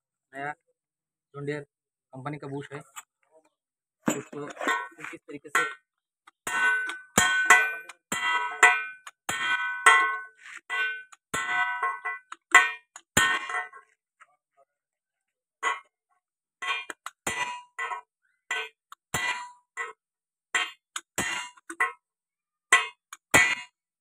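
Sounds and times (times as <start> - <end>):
hammer clanging on metal: 4.1 - 13.8, 22.8 - 23.8.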